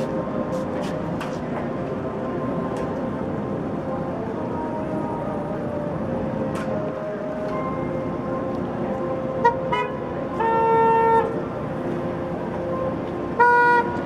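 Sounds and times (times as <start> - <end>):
passing cars: 0.0 - 14.0
car horns honking: 9.4 - 11.4, 13.4 - 14.0.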